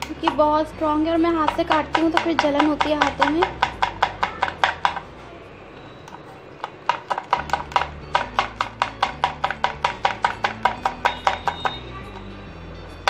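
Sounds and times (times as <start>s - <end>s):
faint background music: 0.0s - 13.0s
knife chopping on cutting board: 1.4s - 5.0s, 6.6s - 11.8s.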